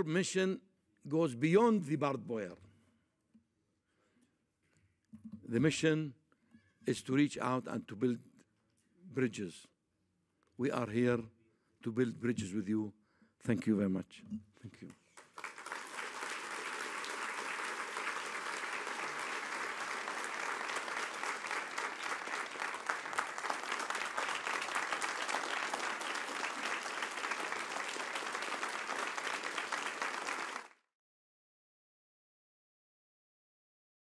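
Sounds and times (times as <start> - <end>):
large audience applauding: 15.1 - 30.8.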